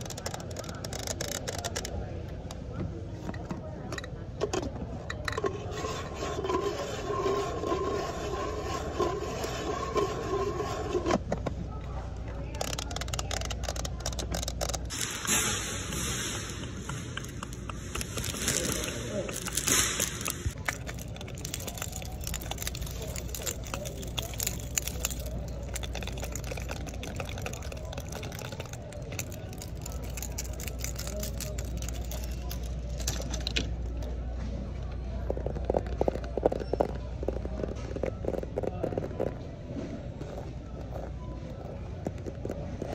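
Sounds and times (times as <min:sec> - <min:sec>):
nails scratching plastic tumbler: 0:05.4 - 0:11.2, 0:17.2 - 0:33.6
plastic crinkling: 0:17.2 - 0:33.6.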